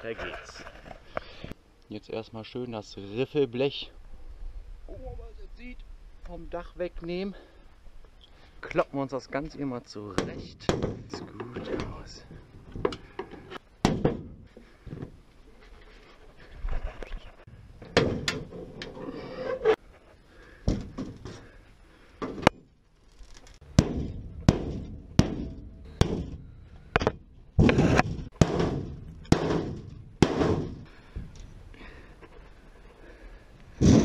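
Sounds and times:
metal bangs and clatters: 0:23.6 - 0:30.9.

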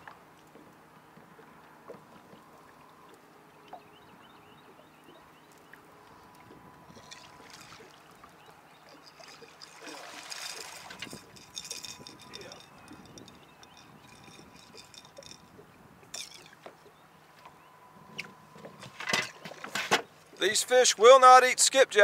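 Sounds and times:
water lapping around boat: 0:00.0 - 0:21.1
fish splashing: 0:06.9 - 0:12.9.

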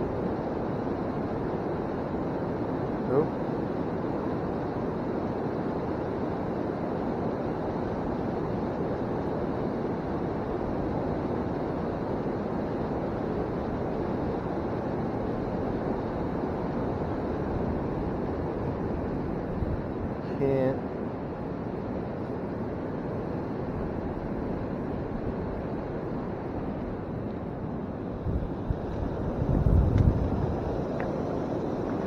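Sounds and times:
river water rushing: 0:21.9 - 0:32.0.

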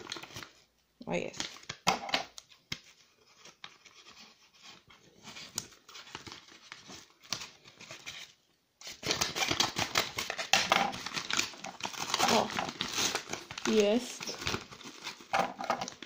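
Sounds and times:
paper crinkling: 0:01.3 - 0:16.0
paper rustling: 0:02.7 - 0:16.0
scissors snipping paper: 0:09.0 - 0:16.0.

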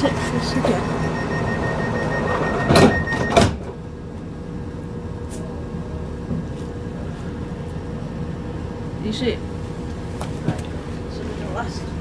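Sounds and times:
train carriage low hum: 0:00.0 - 0:12.0
steady high tone: 0:00.3 - 0:03.4
sliding doors knocking shut: 0:02.2 - 0:03.8.

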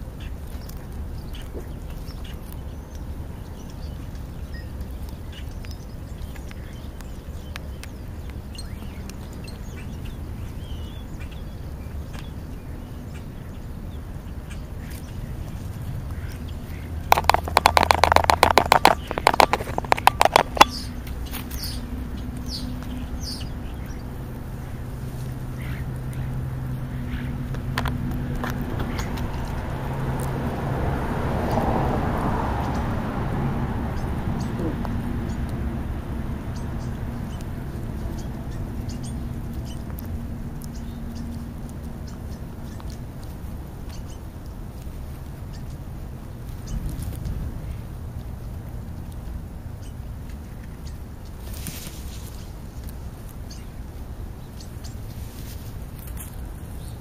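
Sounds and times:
vultures pecking at food: 0:00.0 - 0:57.0
rapid rasping pulses: 0:16.8 - 0:21.0.

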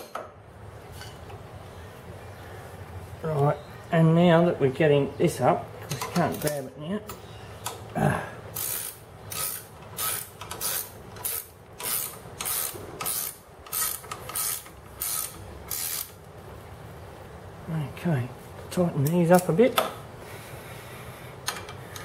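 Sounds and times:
ratchet wrench ratcheting: 0:08.5 - 0:16.2.

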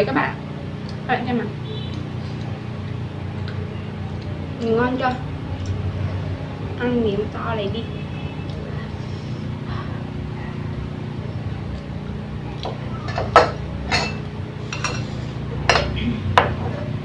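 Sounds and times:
steady low hum: 0:00.0 - 0:17.0
chopsticks and dishes clinking: 0:13.0 - 0:16.0.

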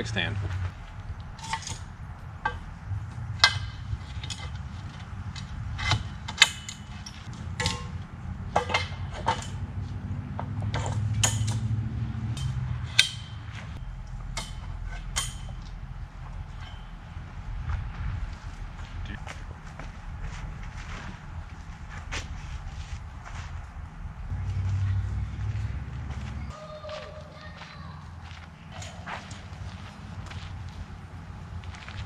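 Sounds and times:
creaking: 0:00.0 - 0:26.5
low rumble: 0:00.0 - 0:26.6
metal parts clanking and clicking: 0:01.3 - 0:02.6, 0:03.4 - 0:11.7, 0:12.3 - 0:13.4, 0:14.0 - 0:16.9.

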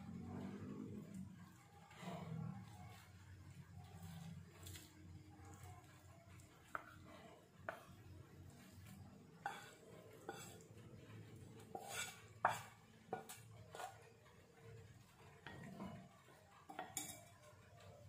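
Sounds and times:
spatula scraping a frying pan: 0:06.7 - 0:17.4.

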